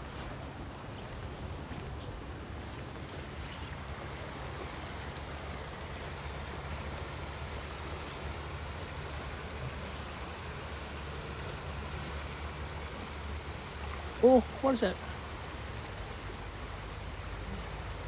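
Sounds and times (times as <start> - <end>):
wind rumble on microphone: 0.0 - 14.2
flowing river water: 0.0 - 18.0.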